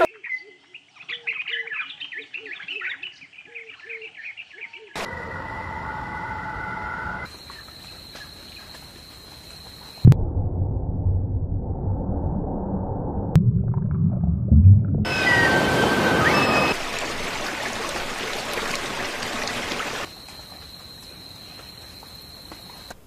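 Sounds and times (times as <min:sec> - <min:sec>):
birds chirping and calling: 0:00.1 - 0:05.0
loud low rumbling: 0:10.1 - 0:15.1
thin high whistle: 0:15.1 - 0:16.8.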